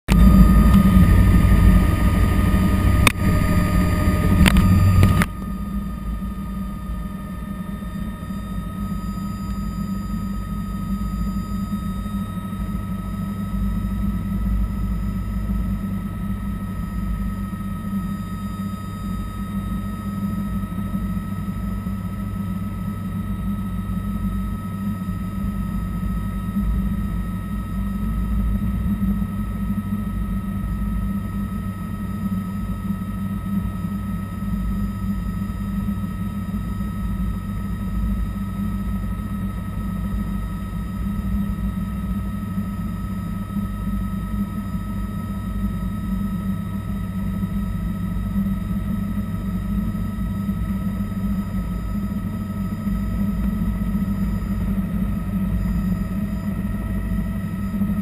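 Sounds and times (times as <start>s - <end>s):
rotor humming: 0.1s - 12.3s
helicopter turbine whine: 0.1s - 58.0s.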